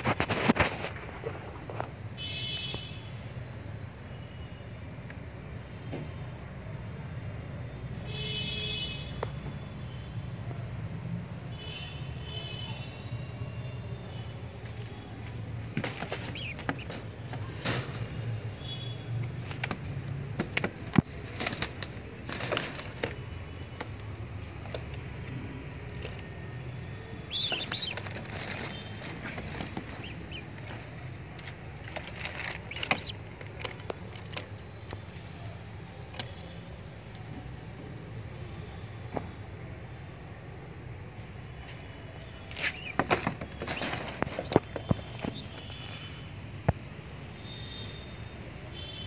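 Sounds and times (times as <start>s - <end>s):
pigeon wings rustling: 15.7s - 17.9s, 19.3s - 24.9s, 27.3s - 34.4s, 42.6s - 45.4s
flurry of wingbeats: 19.4s - 23.3s, 31.8s - 34.3s, 42.6s - 45.2s.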